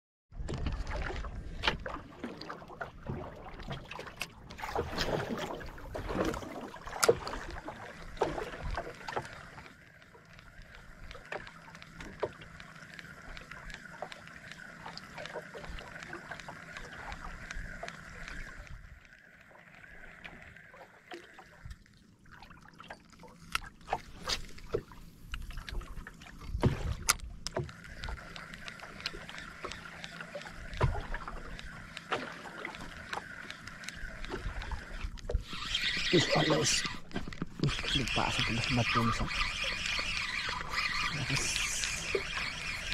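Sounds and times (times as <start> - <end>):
gear knocking and clicking: 26.4 - 42.9.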